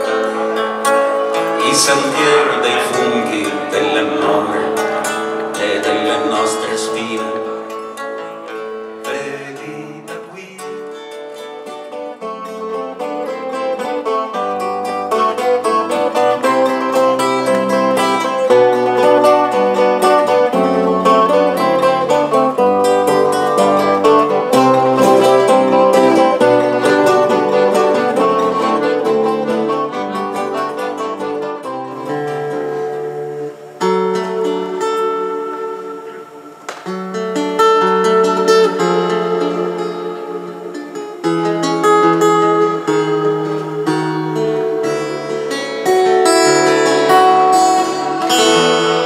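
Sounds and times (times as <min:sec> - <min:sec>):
acoustic guitar: 0:00.0 - 0:49.0
plucked lute melody: 0:00.0 - 0:49.0.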